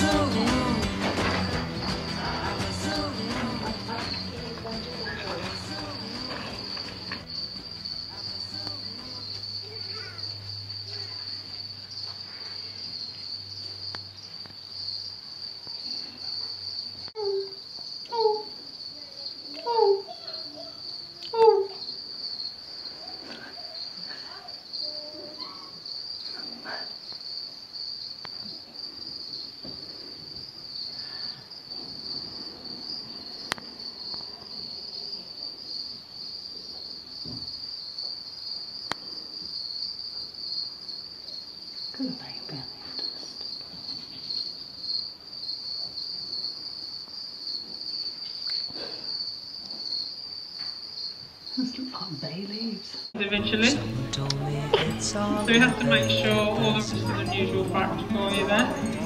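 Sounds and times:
crickets chirring: 0:00.0 - 0:59.0
faint voices: 0:02.2 - 0:11.8, 0:53.2 - 0:59.0.

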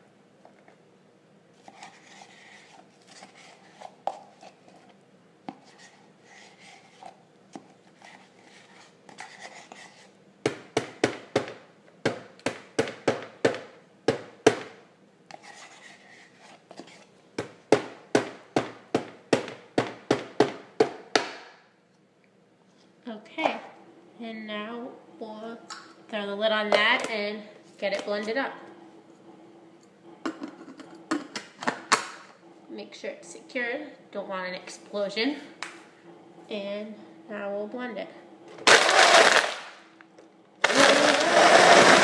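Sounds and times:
spoon scraping plastic tub: 0:01.6 - 0:10.2, 0:15.3 - 0:17.1.

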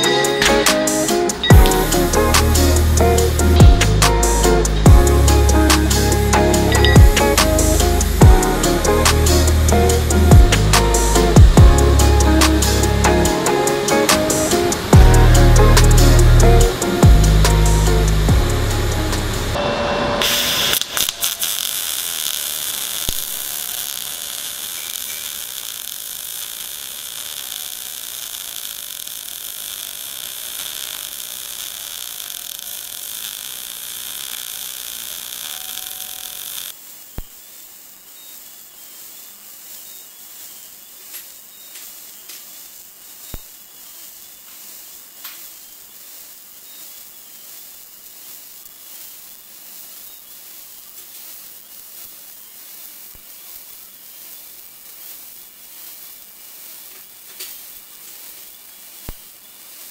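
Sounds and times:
welding arc hissing: 0:00.0 - 0:59.9
spatter popping: 0:20.2 - 0:37.4.

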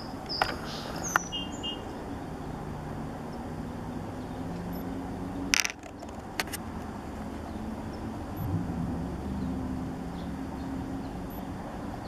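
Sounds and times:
high bird chirps: 0:00.0 - 0:01.9
distant traffic hum: 0:00.0 - 0:12.0
sharp clicks: 0:05.6 - 0:06.9.

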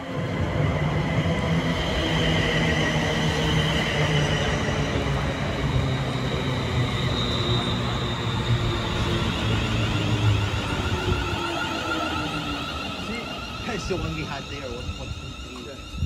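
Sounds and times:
train wheels rumbling on rails: 0:00.0 - 0:16.0
high electric whine: 0:10.1 - 0:16.0.

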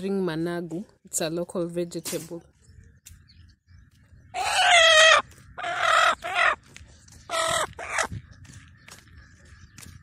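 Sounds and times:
hen squawking: 0:04.4 - 0:06.6, 0:07.3 - 0:08.1.

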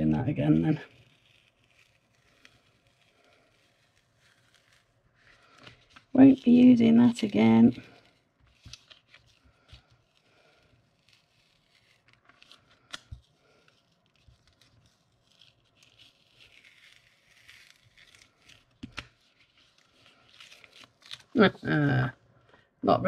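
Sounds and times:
paper peeling and rustling: 0:00.4 - 0:22.0.

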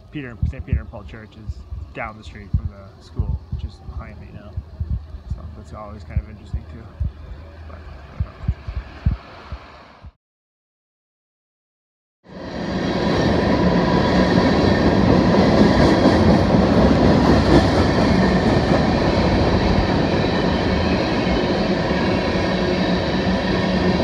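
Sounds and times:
freight train rumbling past: 0:12.3 - 0:24.0.

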